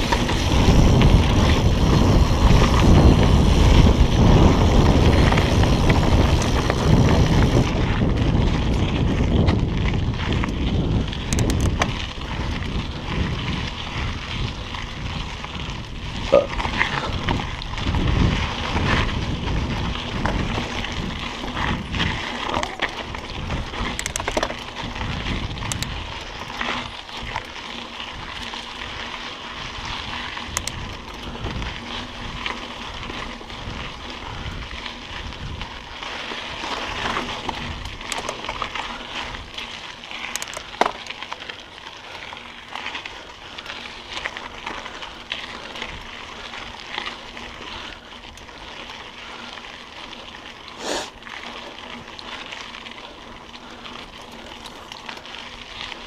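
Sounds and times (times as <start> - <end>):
bike parts rattling: 0.0 - 56.0
bike tyres on dirt: 0.0 - 56.0
sharp clicks and knocks: 11.3 - 11.9.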